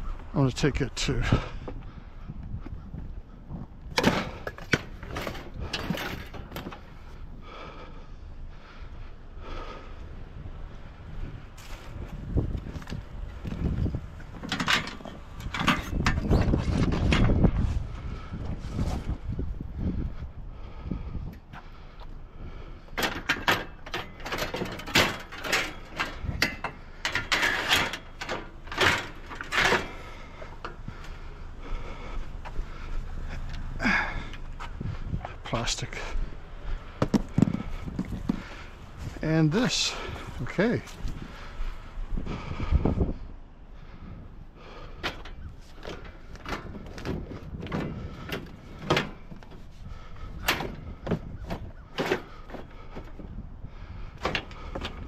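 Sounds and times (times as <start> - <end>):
steel rails knocking and clanking: 3.9 - 7.2, 11.6 - 17.6, 22.8 - 31.2, 44.6 - 55.0.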